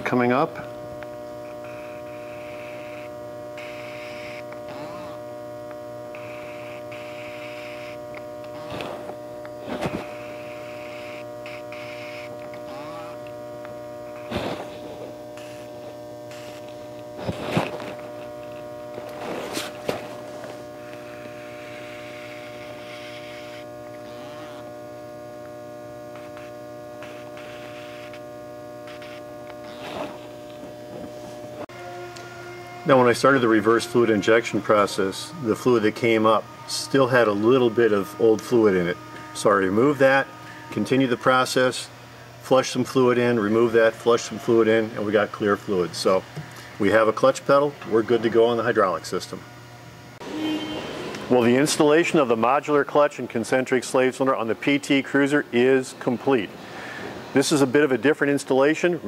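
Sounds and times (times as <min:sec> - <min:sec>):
electrical mains hum: 0:00.0 - 0:59.0.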